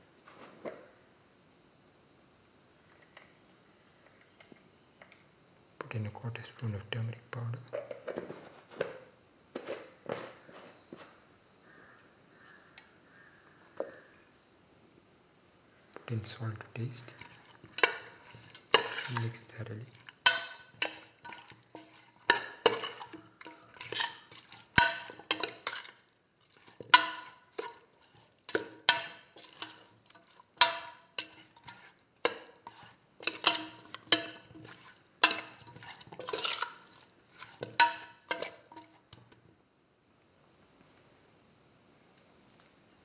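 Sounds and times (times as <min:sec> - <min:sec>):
spoon scraping a metal pot: 0:16.2 - 0:39.3.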